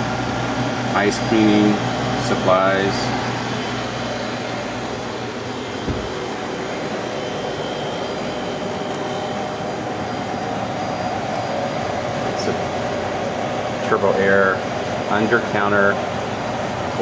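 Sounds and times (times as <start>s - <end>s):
cooling machinery hum: 0.0s - 17.0s
soft low thump: 5.8s - 6.4s.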